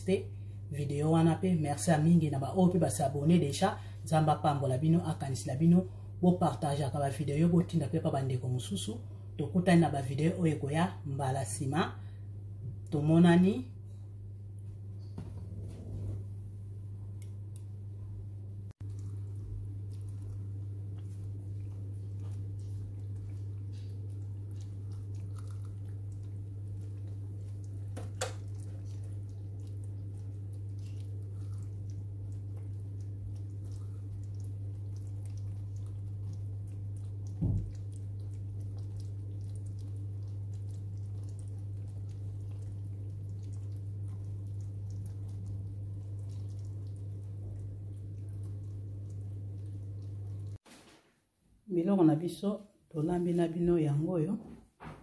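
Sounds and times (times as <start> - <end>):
steady low hum: 0.0 - 50.6
chili simmering with pops: 18.7 - 50.7.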